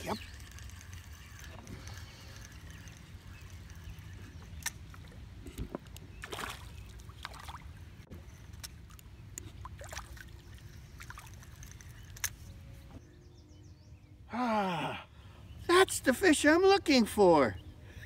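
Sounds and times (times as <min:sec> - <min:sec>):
fish splashing in water: 0:06.2 - 0:07.7.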